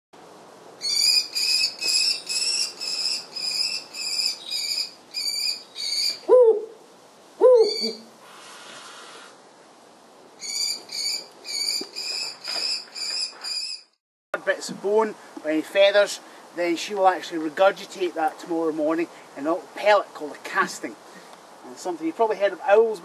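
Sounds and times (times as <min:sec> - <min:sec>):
bird of prey calling: 0:00.8 - 0:06.8, 0:07.4 - 0:08.1, 0:10.4 - 0:13.9.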